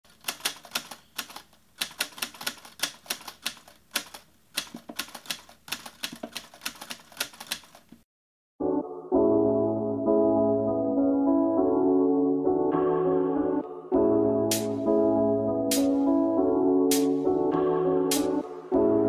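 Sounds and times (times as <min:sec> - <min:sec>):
typewriter key clacks: 0:00.1 - 0:08.0.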